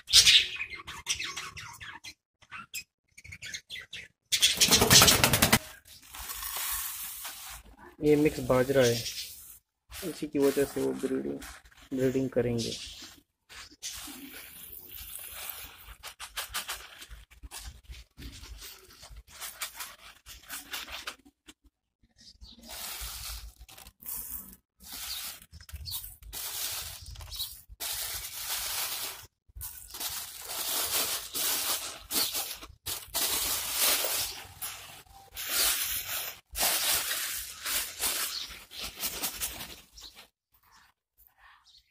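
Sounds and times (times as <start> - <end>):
plastic rustling: 4.8 - 40.9
seeds pouring and stirred: 5.7 - 21.2, 22.5 - 40.1.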